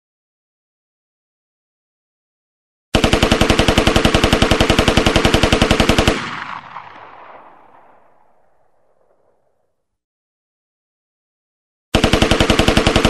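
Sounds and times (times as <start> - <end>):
gunshot echo: 6.2 - 9.9.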